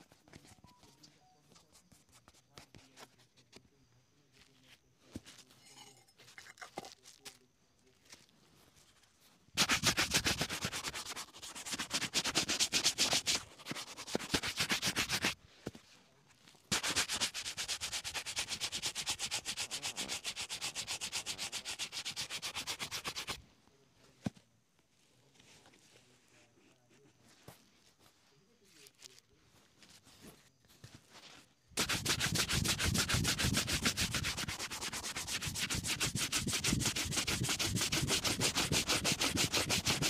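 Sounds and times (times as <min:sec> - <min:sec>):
shoe brush buffing leather boot: 0:09.6 - 0:15.4, 0:16.7 - 0:23.4, 0:31.8 - 0:40.0.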